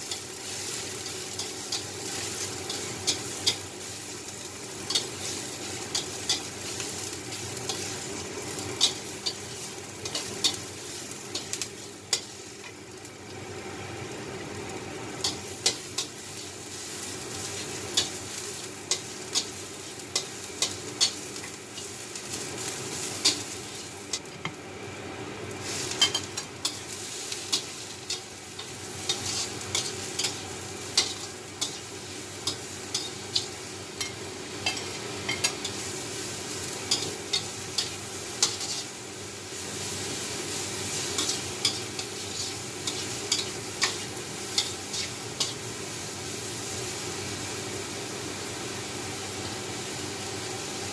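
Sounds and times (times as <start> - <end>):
garlic sizzling in oil: 0.0 - 50.9
spatula scraping wok: 25.6 - 39.0, 39.8 - 45.7.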